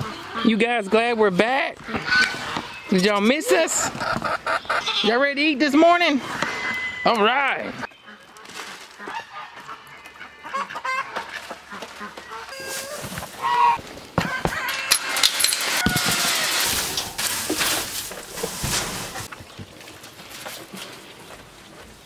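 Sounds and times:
goats calling: 0:00.0 - 0:17.6
poultry calling: 0:01.8 - 0:17.2
hay rustling: 0:11.9 - 0:14.2, 0:15.6 - 0:19.3
gate chain rattling: 0:14.6 - 0:17.2.

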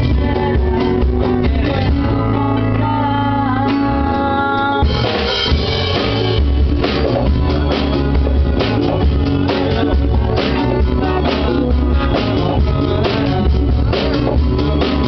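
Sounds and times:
woman singing: 0:00.0 - 0:05.5
drum kit: 0:00.0 - 0:15.0
electric bass: 0:00.0 - 0:15.0
guitars: 0:00.0 - 0:15.0.

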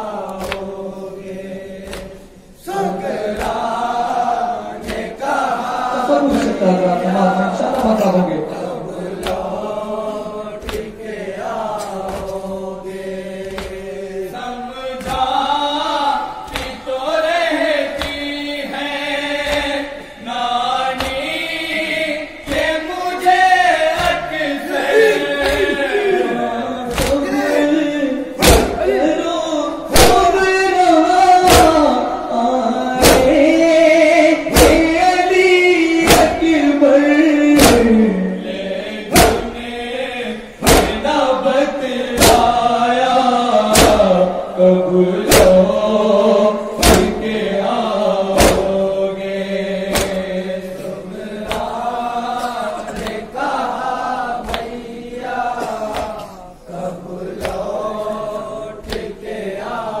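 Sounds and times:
men chanting in unison: 0:00.0 - 1:00.0
chest-beating hand strikes: 0:28.4 - 0:28.8, 0:29.9 - 0:30.4, 0:31.5 - 0:31.8, 0:33.0 - 0:33.4, 0:34.5 - 0:35.0, 0:36.0 - 0:36.5, 0:37.6 - 0:38.0, 0:39.1 - 0:39.7, 0:40.6 - 0:41.1, 0:42.2 - 0:42.6, 0:43.7 - 0:44.1, 0:45.2 - 0:45.8, 0:46.8 - 0:47.3, 0:48.4 - 0:48.8, 0:49.9 - 0:50.2.

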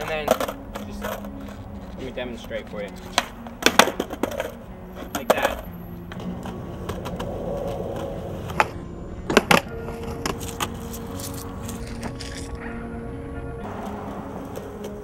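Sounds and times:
skateboard wheels rolling on concrete: 0:00.0 - 0:15.0
skateboard tail clack: 0:03.1 - 0:10.9.

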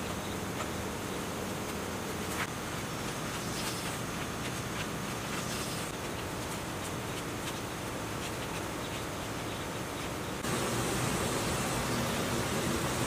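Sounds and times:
steady hiss: 0:00.0 - 0:13.0
paper rustling and scraping: 0:02.2 - 0:09.1.

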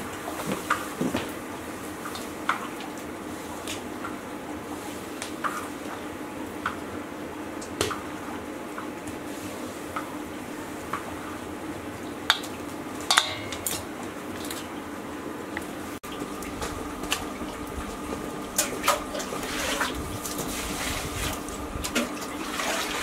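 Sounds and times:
steady low hum: 0:00.0 - 0:23.0
light clinks on metal basin: 0:13.1 - 0:13.9.

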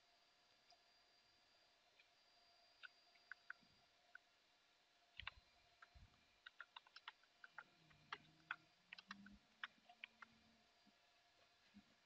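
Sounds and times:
computer keyboard keystrokes: 0:06.4 - 0:10.3.

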